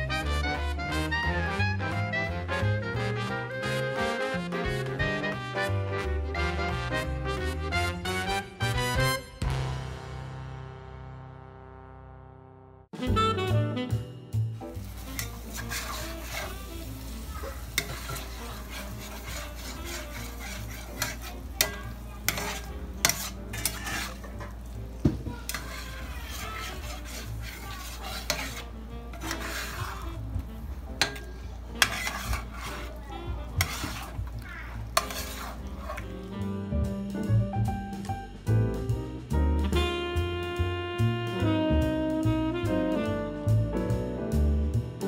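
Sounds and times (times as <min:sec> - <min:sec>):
light sizzle: 0:14.4 - 0:36.6
spatula scraping a skillet: 0:14.7 - 0:36.5
spatula clicking on pan: 0:17.7 - 0:24.6, 0:31.0 - 0:32.7.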